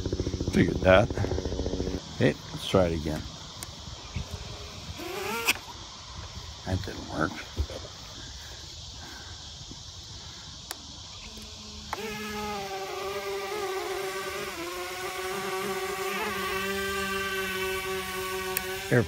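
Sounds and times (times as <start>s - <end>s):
electric motors and propellers whining: 0.0s - 6.3s, 10.7s - 19.0s.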